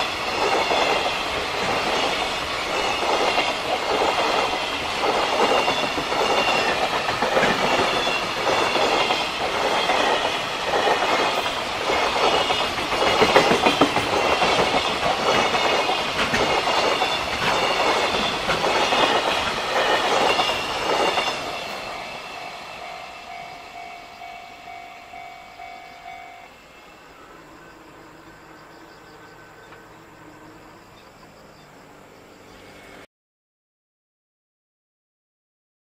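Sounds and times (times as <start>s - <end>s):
train wheels clattering over rails: 0.0s - 25.7s
level-crossing warning bell: 5.7s - 31.1s.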